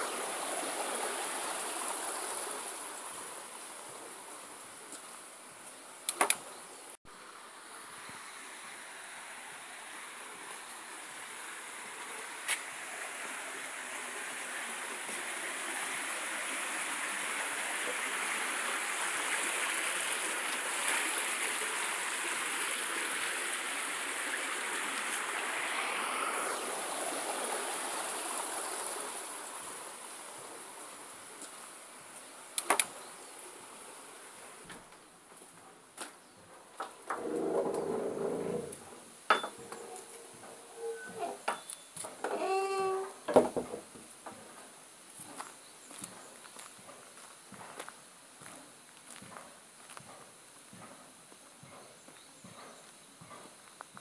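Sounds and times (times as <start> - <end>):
sharp click: 6.1 - 6.5, 32.6 - 32.9.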